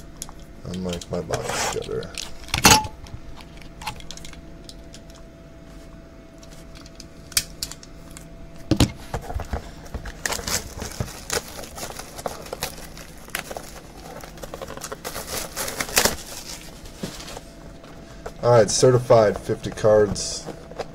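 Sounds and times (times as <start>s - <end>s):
plastic wrap tearing and crinkling: 10.0s - 17.5s.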